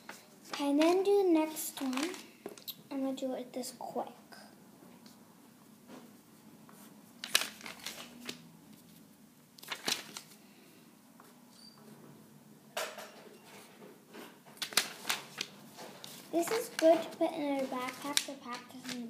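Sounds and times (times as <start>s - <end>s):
paper rustling: 0.0s - 2.6s, 6.7s - 10.4s, 14.5s - 19.0s.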